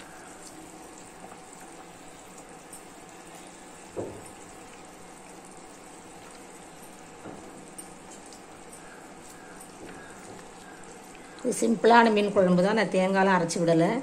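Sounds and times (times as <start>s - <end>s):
curry bubbling in a pot: 0.0s - 13.6s.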